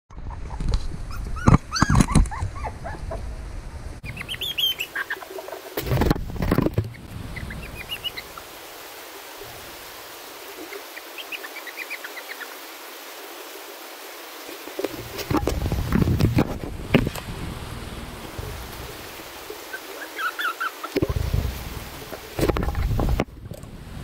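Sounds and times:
puppies whimpering: 0:00.2 - 0:03.2, 0:19.7 - 0:21.0
high chirps: 0:04.0 - 0:05.2.

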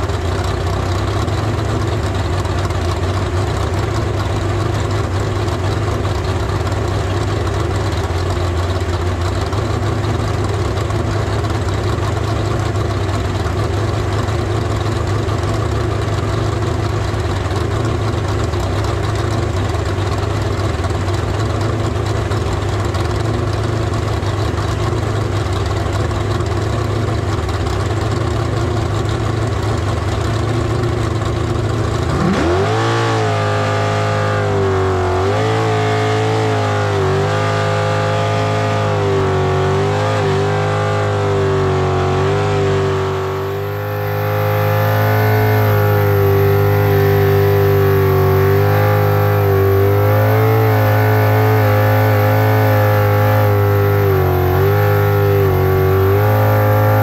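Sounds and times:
boat engine revving: 0:30.4 - 0:57.0
rushing noise: 0:42.9 - 0:52.2.

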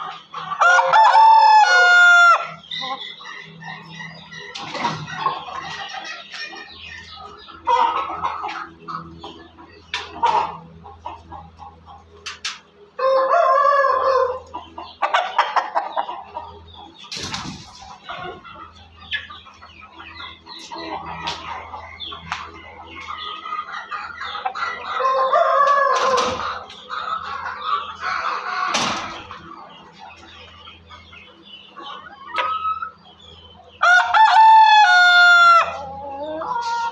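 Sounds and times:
hens clucking softly: 0:00.0 - 0:36.9
rooster crowing: 0:00.6 - 0:02.6, 0:13.0 - 0:14.4, 0:33.8 - 0:36.0.

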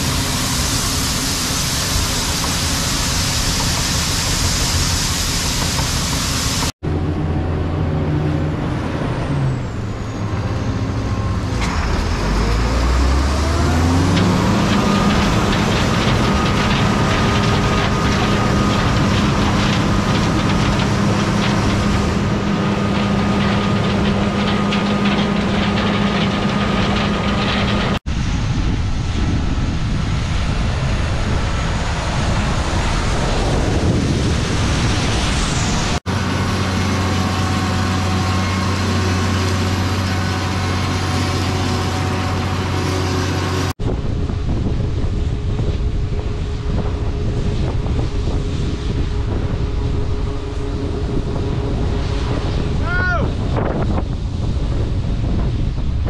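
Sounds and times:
combine harvesters running: 0:00.0 - 0:56.0
wind on microphone: 0:27.4 - 0:38.8, 0:40.7 - 0:56.0.

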